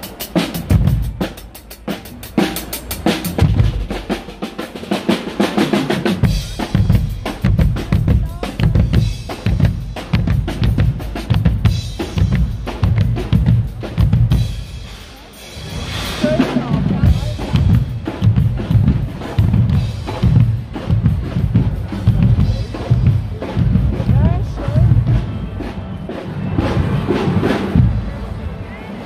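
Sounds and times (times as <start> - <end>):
drum band playing: 0.0 - 28.5.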